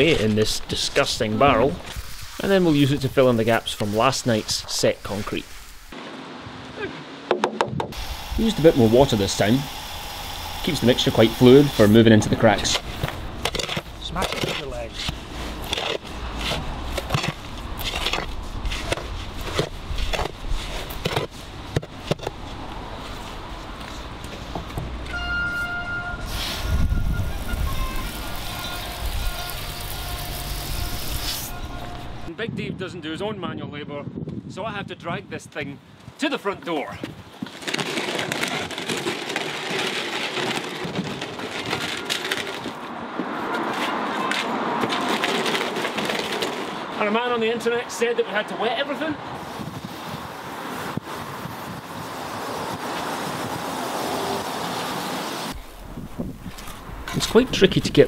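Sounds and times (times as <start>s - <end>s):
shovel scraping wet mortar: 11.4s - 22.4s, 37.5s - 42.8s.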